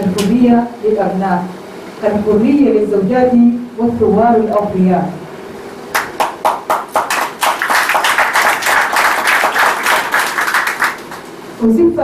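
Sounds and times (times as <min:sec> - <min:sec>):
audience applause: 0:05.9 - 0:11.4.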